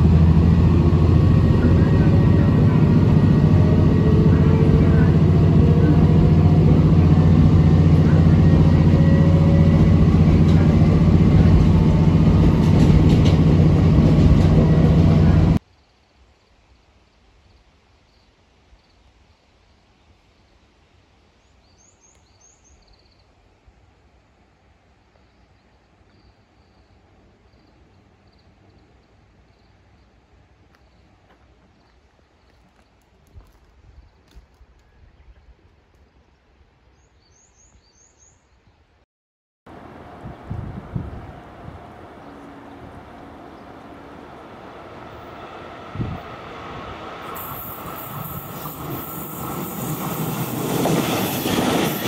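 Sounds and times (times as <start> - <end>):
railcar engine drone: 0.0 - 15.6, 39.7 - 52.0.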